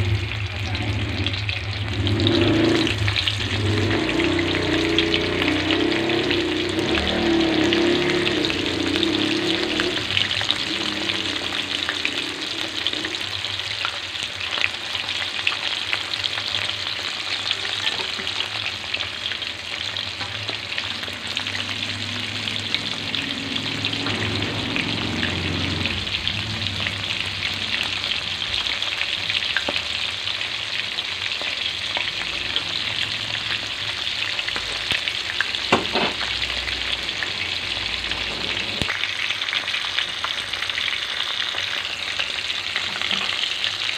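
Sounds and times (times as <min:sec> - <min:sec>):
fish sizzling in hot oil: 0:00.0 - 0:43.9.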